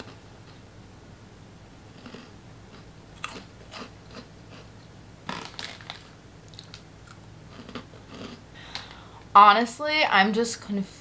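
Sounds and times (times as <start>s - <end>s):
crunching chips: 2.0s - 4.7s, 5.3s - 8.4s.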